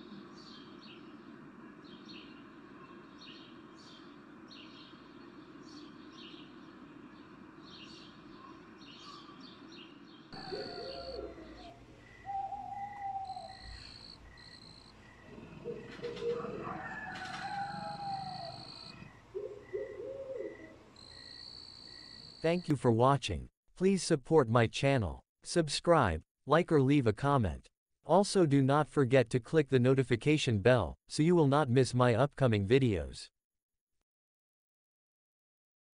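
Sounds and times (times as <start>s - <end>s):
birds chirping: 0.1s - 20.8s
low gliding calls: 10.4s - 14.2s
pulsing insect chirp: 10.4s - 16.2s, 17.4s - 22.5s
insects trilling: 10.4s - 22.5s.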